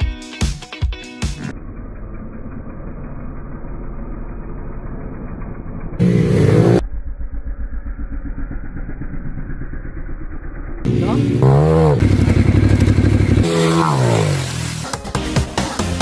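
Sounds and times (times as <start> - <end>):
pit bike engines idling: 1.4 - 16.0
engine revving hard: 6.0 - 6.8, 10.8 - 14.9.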